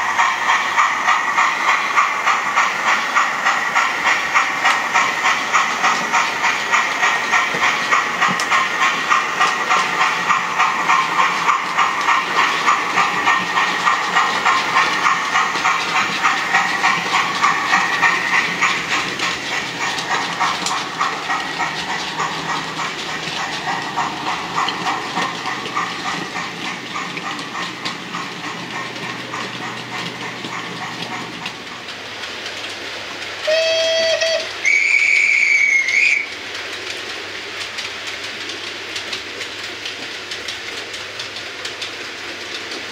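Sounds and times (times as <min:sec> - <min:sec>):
rail clatter: 0:00.0 - 0:42.9
steam locomotive chuffing: 0:00.0 - 0:42.9
train whistle blasts: 0:33.4 - 0:36.3.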